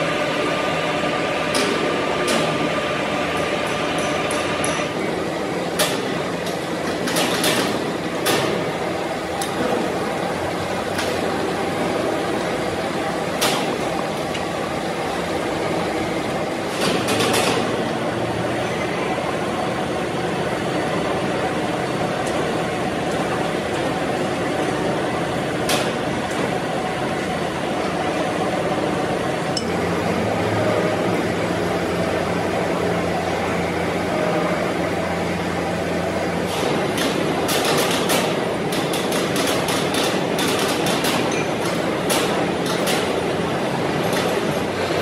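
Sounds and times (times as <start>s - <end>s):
machine shop noise: 0.0s - 45.0s.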